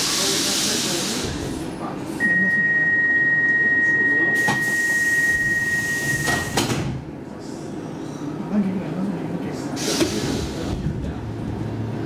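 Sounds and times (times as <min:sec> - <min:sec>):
high door warning beep: 0:02.2 - 0:06.6
train doors knocking shut: 0:06.2 - 0:07.1.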